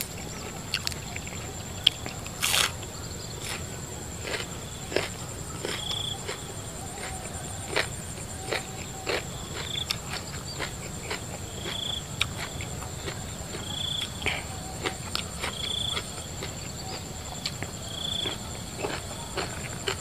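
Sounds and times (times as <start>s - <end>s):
cricket chirp: 0.0s - 20.0s
crickets trilling: 0.0s - 20.0s
shrimp shell cracking: 1.9s - 2.8s.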